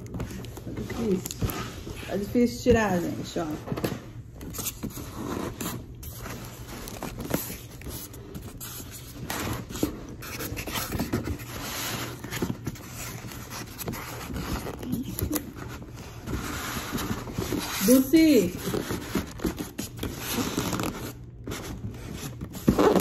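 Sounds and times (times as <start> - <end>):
foam scraping against cardboard box: 4.7 - 15.0.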